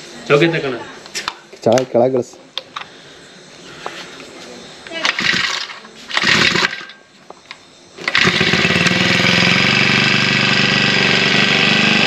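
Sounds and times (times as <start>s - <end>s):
brush cutter engine running: 5.0s - 6.9s, 8.0s - 12.0s.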